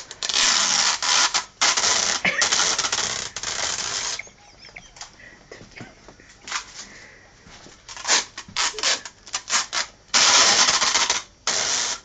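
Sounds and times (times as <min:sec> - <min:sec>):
tape pulled off roll screeching: 0:00.0 - 0:05.1, 0:07.9 - 0:12.0.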